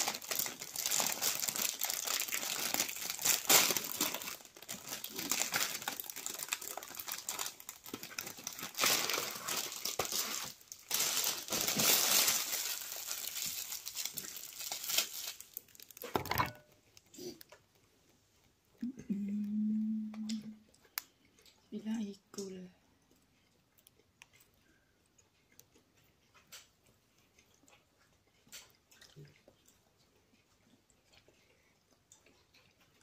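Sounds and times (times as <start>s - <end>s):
plastic packaging crinkling: 0.0s - 16.6s.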